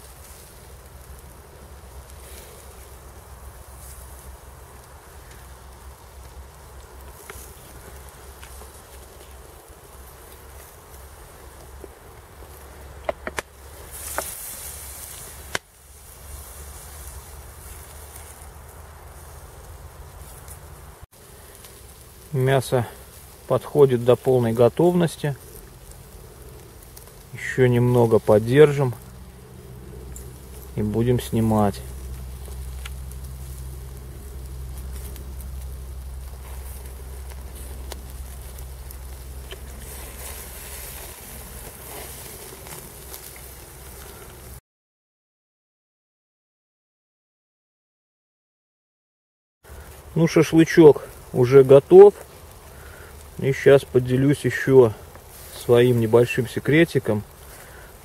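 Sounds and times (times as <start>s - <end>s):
beer hissing on coals: 0.0s - 44.6s, 49.6s - 58.0s
meat sizzling over charcoal: 0.0s - 44.6s, 49.6s - 58.0s.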